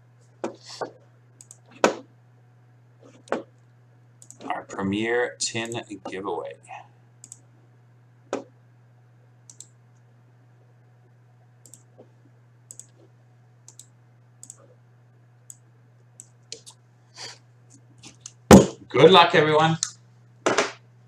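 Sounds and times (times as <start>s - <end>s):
steady low hum: 0.0s - 21.0s
light computer clicks: 1.4s - 1.7s, 4.2s - 4.5s, 5.6s - 5.9s, 7.2s - 7.4s, 9.5s - 9.8s, 11.6s - 11.9s, 12.7s - 13.0s, 13.7s - 14.6s.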